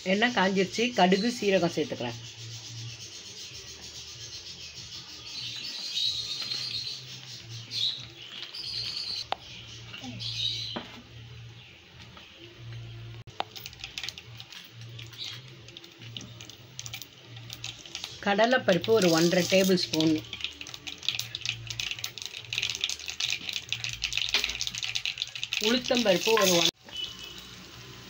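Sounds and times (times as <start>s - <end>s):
seeds popping: 5.7s - 9.4s, 13.3s - 26.8s
seeds sizzling in hot oil: 13.2s - 28.0s.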